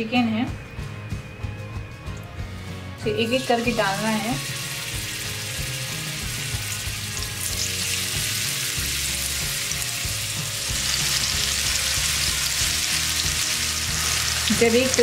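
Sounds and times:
chicken sizzling in hot oil: 0:03.2 - 0:15.0.

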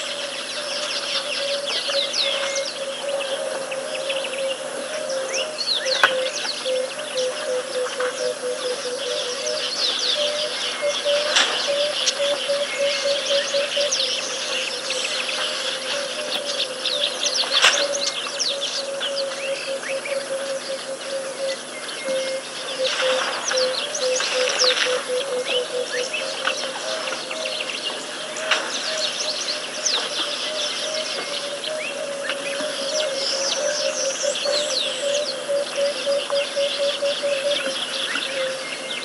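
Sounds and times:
birds chirping and whistling: 0:00.0 - 0:39.0.

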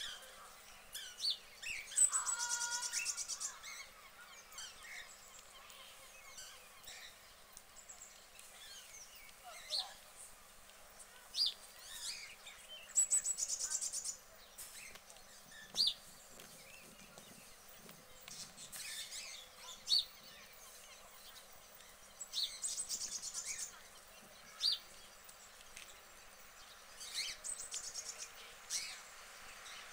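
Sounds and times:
bird chirps: 0:00.0 - 0:10.1, 0:11.0 - 0:29.9
bird trilling: 0:01.8 - 0:03.6.

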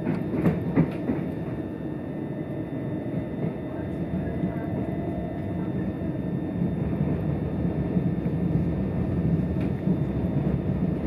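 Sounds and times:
train rumbling from inside carriage: 0:00.0 - 0:11.0.

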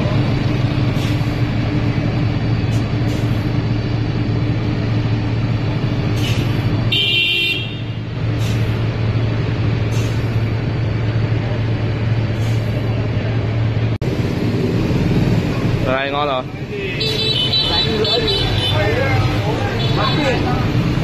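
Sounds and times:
vehicle engine idling: 0:00.0 - 0:21.0.

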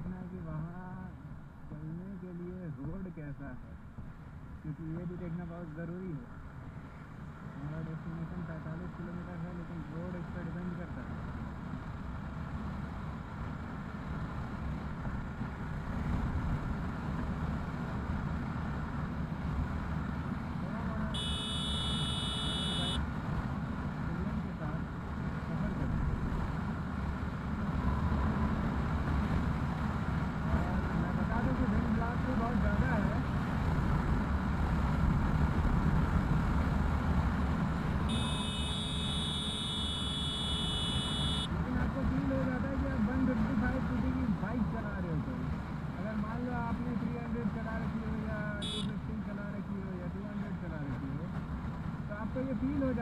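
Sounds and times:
wind and road noise: 0:00.0 - 0:53.0
steady high-pitched tone: 0:38.1 - 0:41.5.

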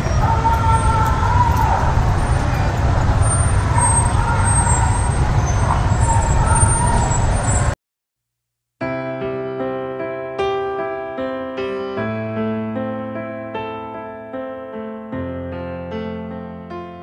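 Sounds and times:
low street rumble: 0:00.0 - 0:07.8.

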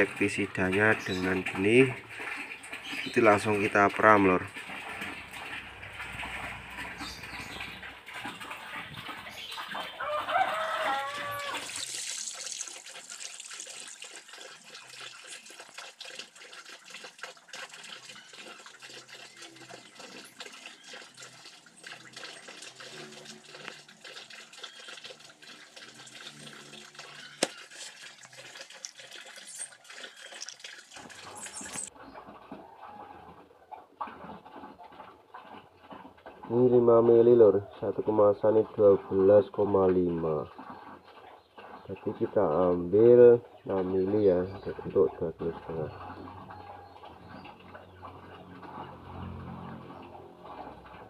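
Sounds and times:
wet grains and water crackling: 0:00.0 - 0:51.0
farm animal calling: 0:06.8 - 0:11.8.

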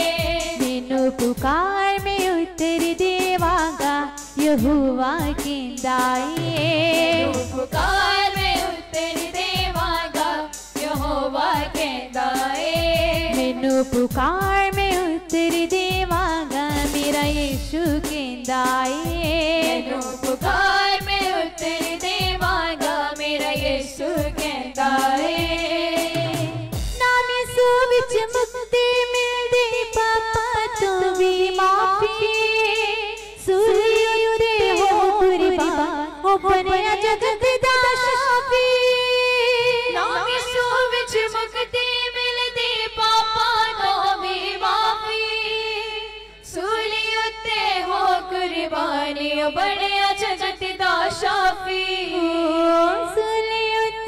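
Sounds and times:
group singing in unison: 0:00.0 - 0:01.0, 0:06.3 - 0:13.9, 0:19.4 - 0:26.8, 0:42.6 - 0:51.6
steady rhythmic beat: 0:00.0 - 0:27.2, 0:32.3 - 0:37.8.

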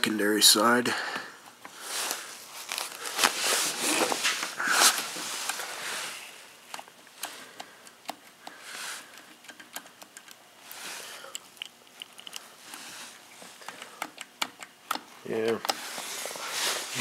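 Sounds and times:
soft rustling: 0:01.7 - 0:06.5, 0:15.8 - 0:17.0
metal clicks and taps: 0:06.7 - 0:10.4, 0:13.7 - 0:15.8.

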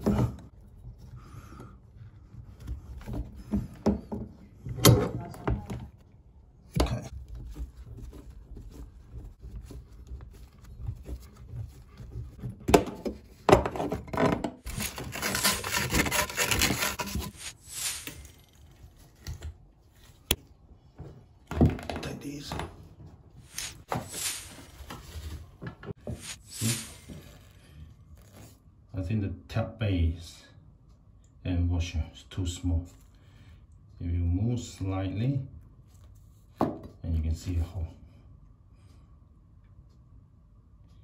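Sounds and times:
rubbing and scraping: 0:06.9 - 0:14.0, 0:14.6 - 0:19.0, 0:23.4 - 0:27.6.

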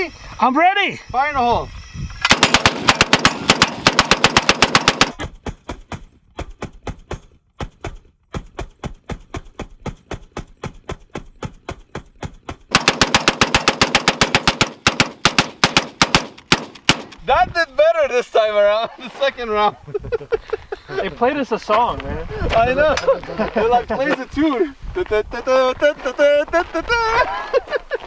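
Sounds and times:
rapid gunfire: 0:02.3 - 0:05.2, 0:12.7 - 0:17.2.

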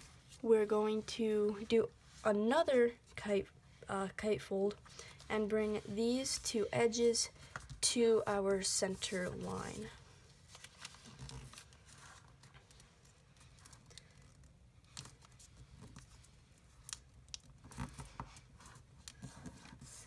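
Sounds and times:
paper rustling and crinkling: 0:08.9 - 0:20.0
sharp paper crackles: 0:10.5 - 0:20.0.

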